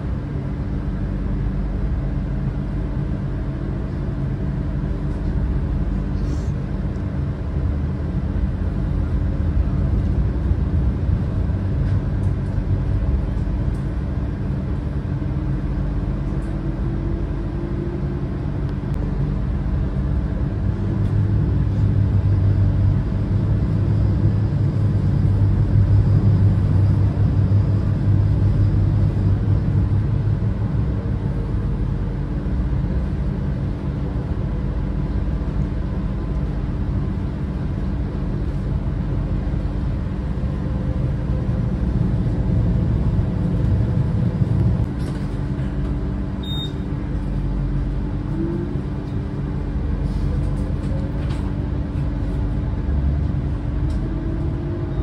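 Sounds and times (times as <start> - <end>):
moving vehicle rumble: 0.0 - 55.0
short high beep: 46.4 - 46.8.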